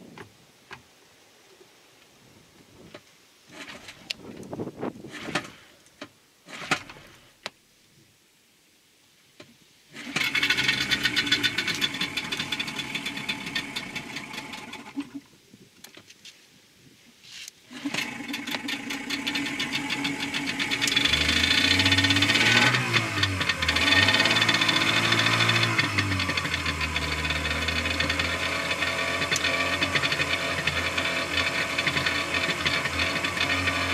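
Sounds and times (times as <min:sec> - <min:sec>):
outboard engine starting and running: 0:03.5 - 0:04.5, 0:05.1 - 0:07.3, 0:09.9 - 0:15.3, 0:17.7 - 0:33.9.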